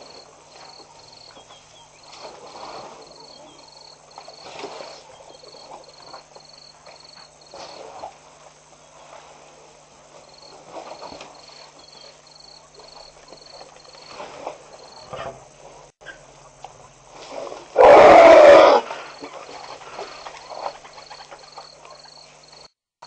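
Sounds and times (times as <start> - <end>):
elephant calling: 17.8 - 19.4.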